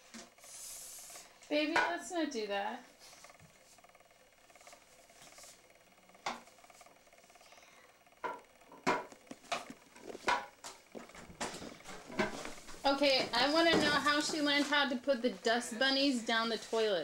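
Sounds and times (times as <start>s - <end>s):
plastic dustpan tapping toilet: 8.3s - 10.8s.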